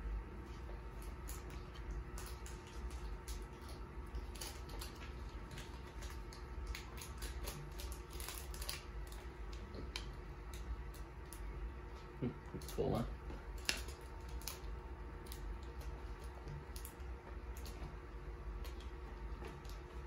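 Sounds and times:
foil wrappers tearing: 4.2 - 9.2, 12.6 - 14.7.

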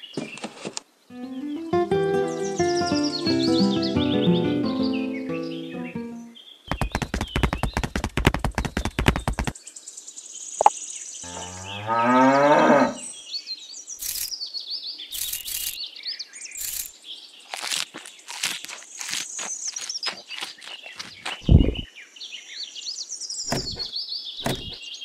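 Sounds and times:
rapid clicking: 6.7 - 9.5
cow mooing: 11.3 - 13.0
high bird chirps: 14.0 - 14.4, 15.1 - 21.9.

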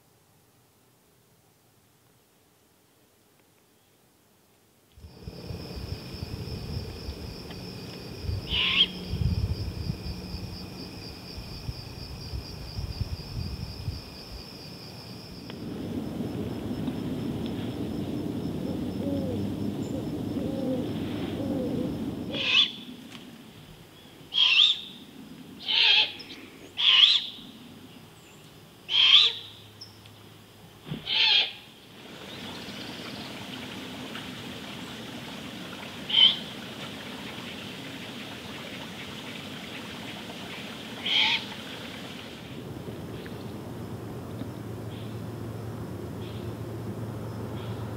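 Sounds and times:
low background rumble: 5.0 - 23.8, 42.3 - 47.9
owl begging screeches: 8.5 - 9.0, 22.3 - 22.8, 24.3 - 24.8, 25.6 - 26.2, 26.8 - 27.3, 28.9 - 29.4, 31.1 - 31.6, 36.1 - 36.4, 41.0 - 41.4.

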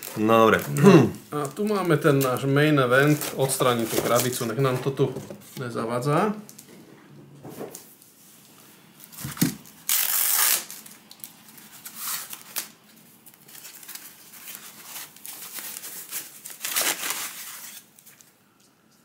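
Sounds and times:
packing tape tearing: 0.0 - 1.0, 9.1 - 18.3
plastic foam wrap crinkling: 0.0 - 5.1, 9.0 - 18.7.

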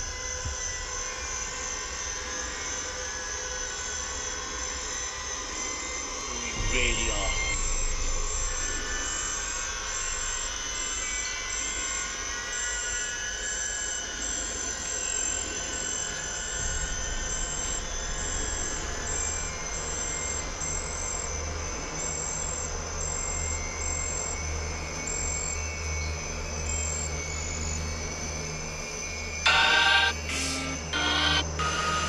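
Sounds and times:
steady low drone: 5.4 - 14.6, 15.6 - 32.0
high-pitched insect chirp: 6.3 - 8.2.

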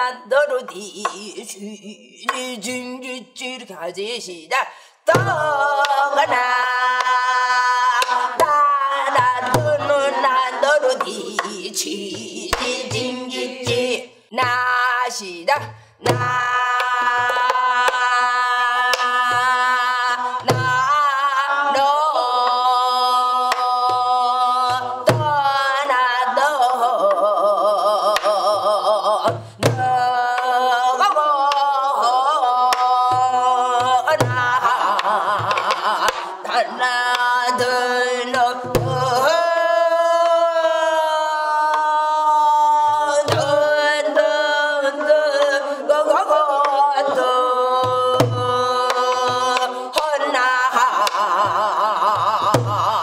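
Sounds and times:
woman singing wordless syllables: 0.0 - 53.0.

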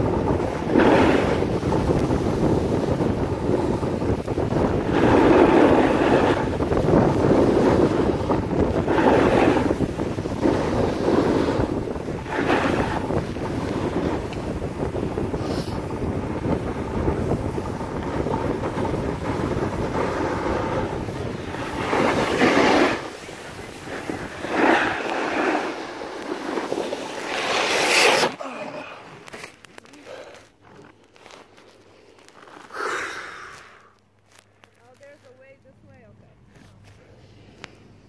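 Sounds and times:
wind rushing over microphone: 0.0 - 28.4
skis scraping across snow: 0.0 - 37.8.

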